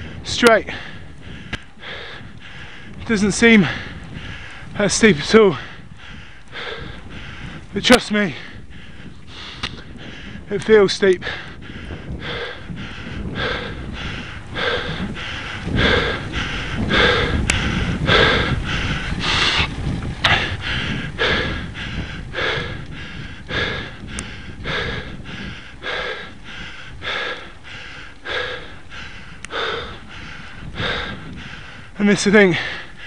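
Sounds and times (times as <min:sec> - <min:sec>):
cyclist panting hard: 0:00.0 - 0:33.0.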